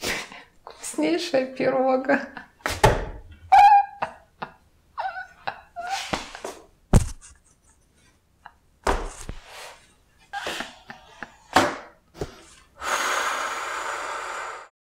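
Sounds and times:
woman laughing breathily: 3.9s - 6.5s, 10.3s - 11.6s.

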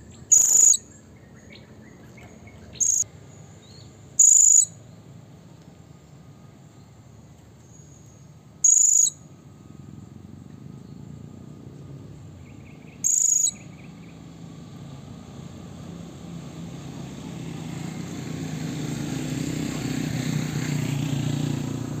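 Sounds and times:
parrot shrill call: 0.2s - 0.9s, 2.8s - 3.0s, 4.2s - 4.7s, 8.6s - 9.2s, 13.0s - 13.6s.

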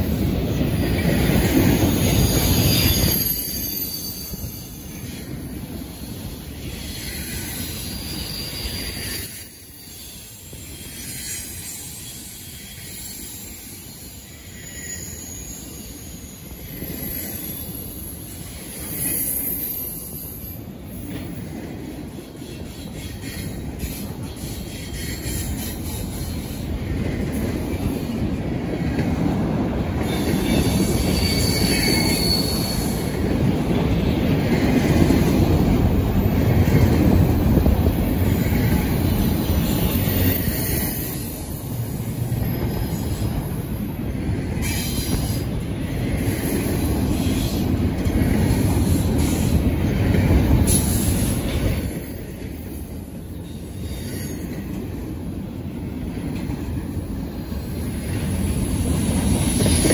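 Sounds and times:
train wheels rumbling on rail: 0.0s - 59.9s
wheel squeals: 1.4s - 5.1s, 6.7s - 21.4s, 30.0s - 33.3s, 38.0s - 43.8s.

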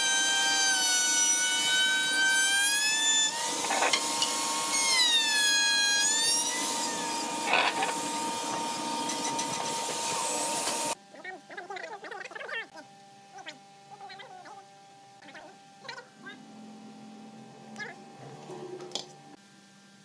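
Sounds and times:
electric router whining: 0.0s - 11.0s, 16.1s - 19.4s.

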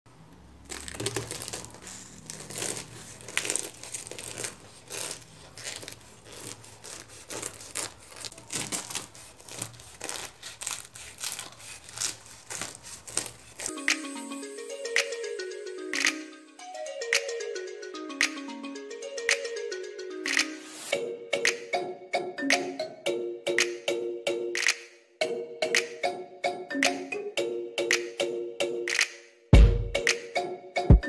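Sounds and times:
knife crunching through pastry: 0.7s - 13.7s
music: 13.7s - 31.0s.

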